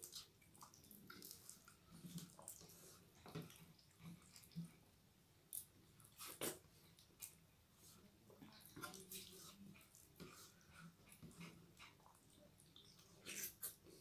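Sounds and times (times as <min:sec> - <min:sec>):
chewing: 0:00.0 - 0:04.8, 0:08.5 - 0:14.0.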